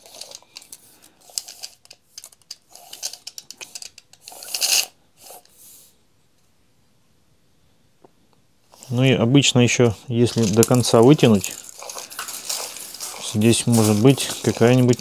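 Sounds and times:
tape measure clicking and rattling: 0.0 - 5.6, 10.3 - 15.0
tape measure retracting zip: 2.7 - 5.5, 11.4 - 15.0.

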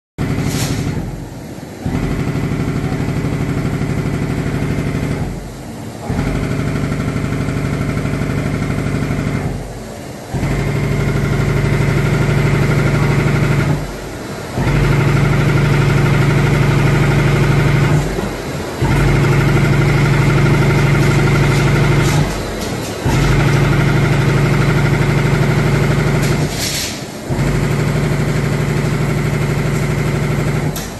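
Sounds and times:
machine punching leather: 0.2 - 30.9.

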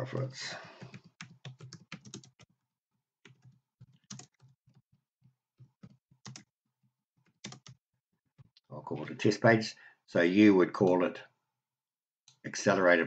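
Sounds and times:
computer keyboard typing: 0.7 - 2.5, 3.2 - 4.8, 5.7 - 6.5, 7.3 - 7.8.

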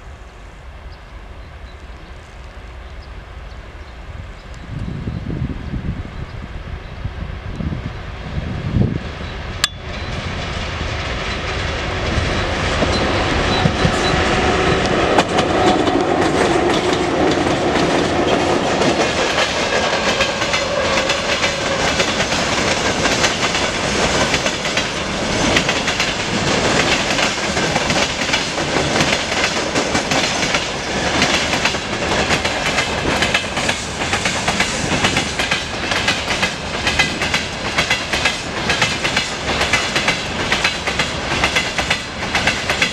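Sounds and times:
electric locomotive passing: 0.0 - 42.9
train wheels clickety-clack: 9.6 - 42.9.

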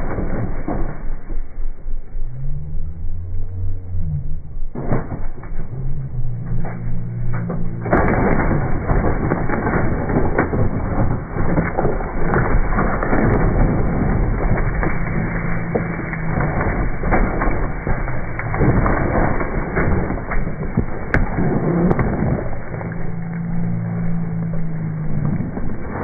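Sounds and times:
dirt bike engine running: 0.0 - 26.0
bike crackling and scraping on rock: 7.4 - 26.0.

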